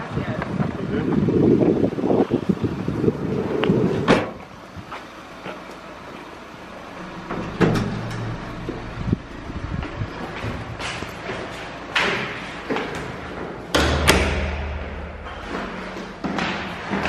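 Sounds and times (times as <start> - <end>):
wind on microphone: 0.0 - 4.2, 8.9 - 11.1
rumbling vehicle noise: 0.0 - 17.0
knocks: 7.0 - 8.9
door banging shut: 7.0 - 10.7.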